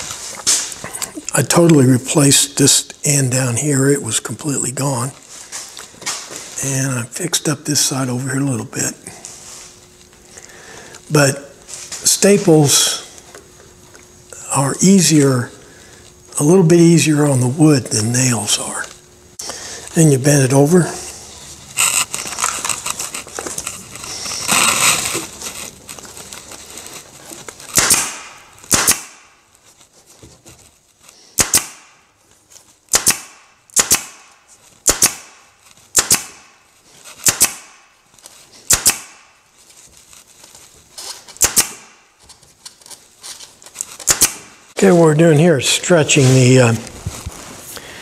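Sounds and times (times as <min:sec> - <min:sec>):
webbing rustling: 0:19.9 - 0:27.8, 0:39.4 - 0:48.0
upholstery stapler firing: 0:27.7 - 0:29.3, 0:31.4 - 0:31.9, 0:32.9 - 0:35.3, 0:36.0 - 0:36.4, 0:37.2 - 0:37.7, 0:38.7 - 0:39.2, 0:41.4 - 0:41.9, 0:44.0 - 0:44.5.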